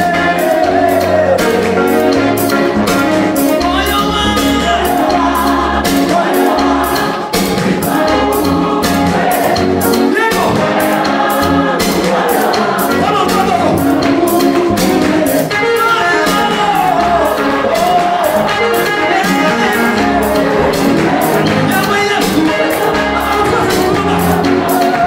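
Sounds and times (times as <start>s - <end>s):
band with steady beat: 0.0s - 25.0s
choir singing gospel music: 0.0s - 25.0s.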